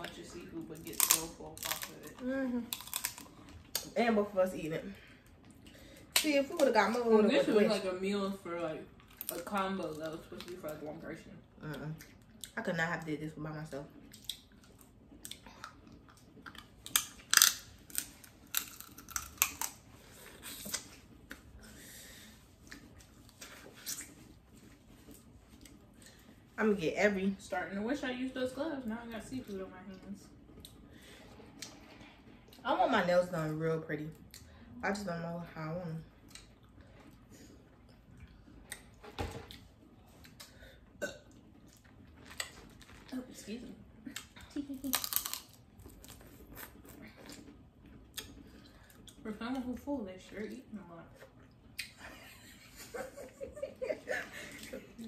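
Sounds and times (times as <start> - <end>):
chewing and lip smacks: 14.0 - 21.5, 36.2 - 40.6, 44.1 - 49.2, 51.2 - 52.0.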